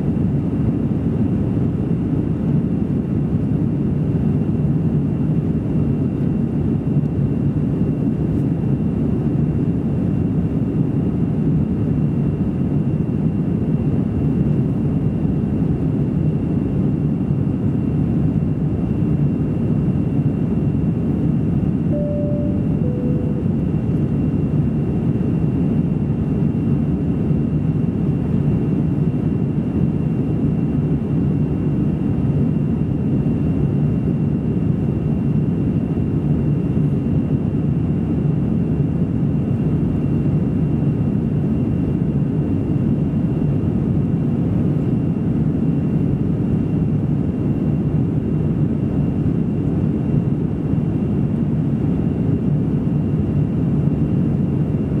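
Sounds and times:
airplane cabin roar: 0.0s - 52.0s
faint high whine: 21.8s - 25.4s.

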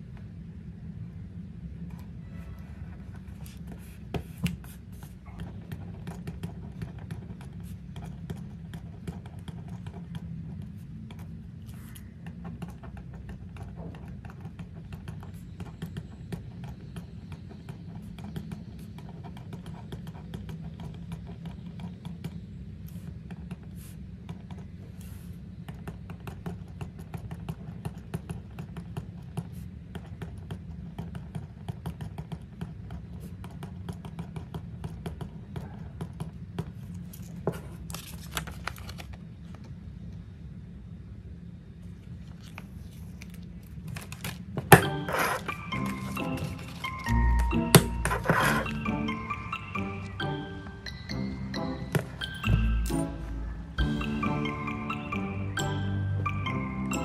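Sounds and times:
low steady hum: 0.0s - 57.0s
pen scratching on paper: 2.9s - 37.7s, 44.8s - 46.9s, 48.0s - 48.9s
paper handling: 37.0s - 39.7s, 42.2s - 48.7s.

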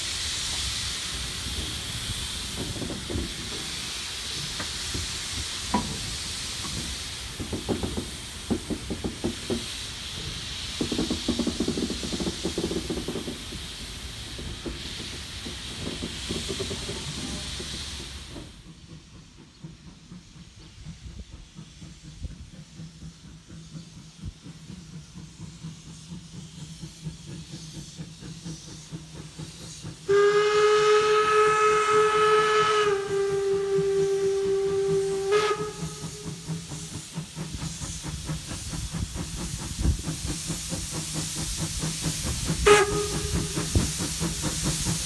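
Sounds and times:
steady steam hiss: 0.0s - 45.0s
steam locomotive whistle: 30.0s - 36.7s, 42.5s - 43.9s.

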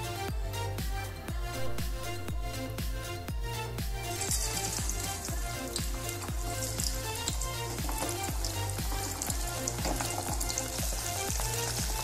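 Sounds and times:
background music with low beat: 0.0s - 12.0s
chicken deep-frying in oil: 4.2s - 12.0s.

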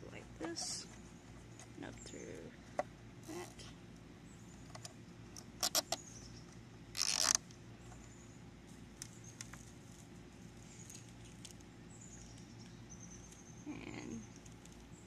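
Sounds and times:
zip tie ratcheting zip: 5.6s - 5.9s, 6.9s - 7.4s.

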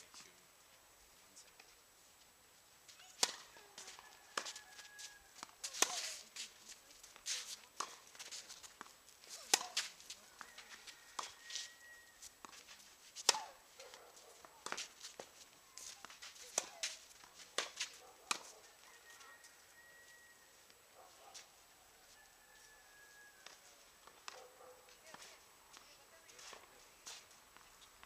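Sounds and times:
racket hitting tennis ball: 3.1s - 4.6s, 5.4s - 6.5s, 7.1s - 10.0s, 11.2s - 11.4s, 12.4s - 13.5s, 14.6s - 18.5s.

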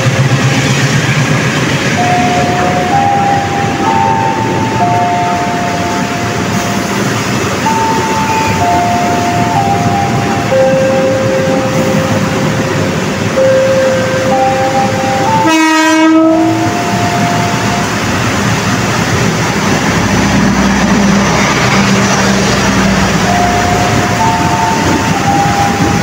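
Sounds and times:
train wheels rushing on rail: 0.0s - 26.0s
train horn blast: 13.5s - 18.0s.

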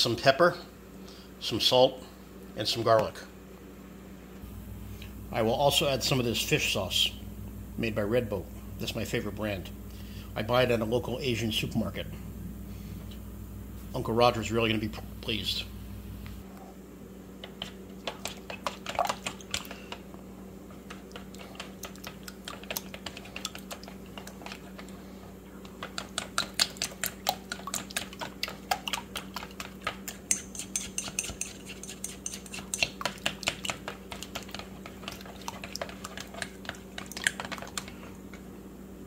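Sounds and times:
chopsticks beating eggs in metal bowl: 17.4s - 20.1s, 20.7s - 38.3s.

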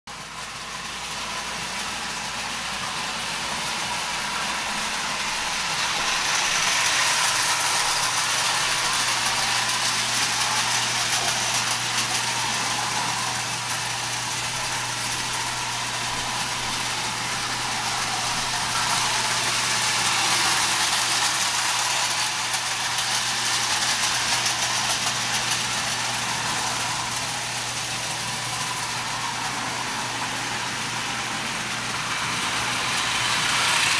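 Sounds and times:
tin wheels rattling on rails: 0.1s - 33.9s
toy train motors whirring: 0.1s - 33.9s.

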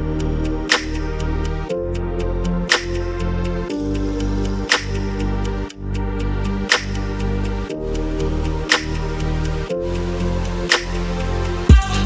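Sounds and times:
sustained chords over deep bass: 0.0s - 12.0s
ticking percussion: 0.0s - 12.0s.

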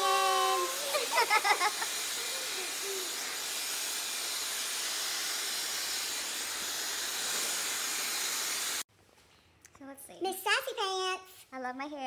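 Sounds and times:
hair dryer blowing: 0.0s - 8.9s.

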